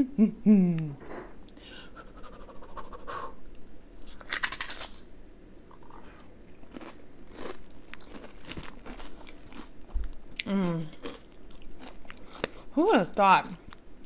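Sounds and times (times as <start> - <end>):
person chewing chip: 4.0 - 5.0, 5.7 - 12.7
potato chip crunching: 4.1 - 5.0, 5.8 - 12.7.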